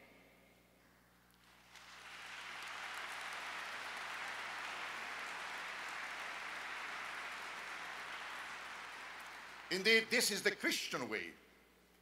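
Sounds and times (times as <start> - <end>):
audience applauding: 1.4 - 10.6.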